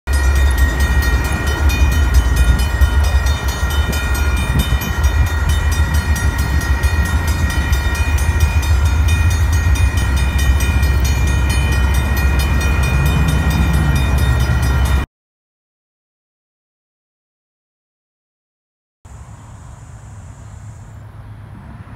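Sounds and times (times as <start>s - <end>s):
railroad crossing bell ringing: 0.1s - 15.1s.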